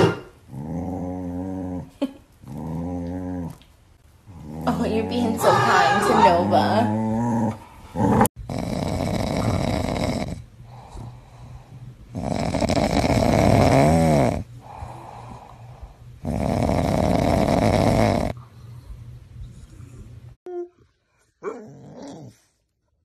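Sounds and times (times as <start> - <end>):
dog snoring loudly: 0.0 - 3.6, 4.3 - 18.4
dog breathing: 7.1 - 20.2.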